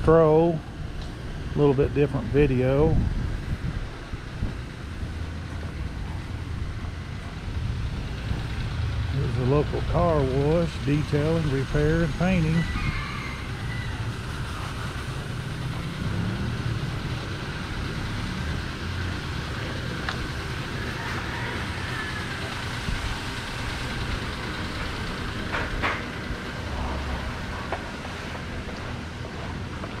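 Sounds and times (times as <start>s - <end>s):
motor vehicles rushing: 0.0s - 30.0s.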